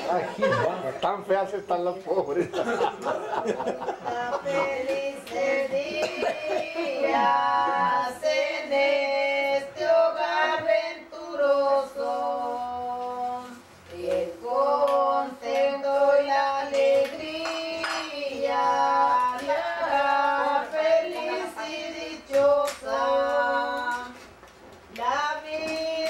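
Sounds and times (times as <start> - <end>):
women singing a slow song: 3.0 - 26.0.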